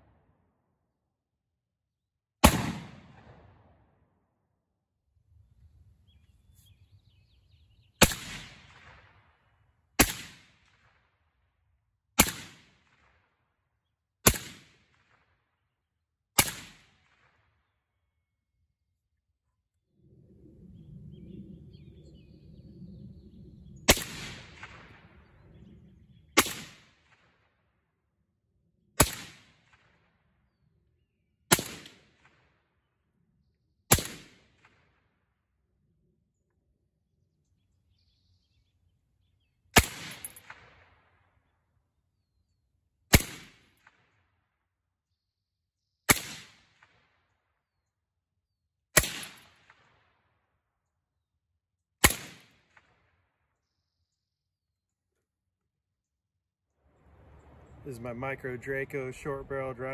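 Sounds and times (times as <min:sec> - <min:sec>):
suppressed rifle shots: 0:02.4 - 0:03.6, 0:08.0 - 0:09.1, 0:16.4 - 0:17.3, 0:26.4 - 0:27.2, 0:39.8 - 0:40.9, 0:46.1 - 0:47.0, 0:49.0 - 0:50.1, 0:52.0 - 0:52.9
low rumble of handling noise: 0:56.9 - 0:59.9.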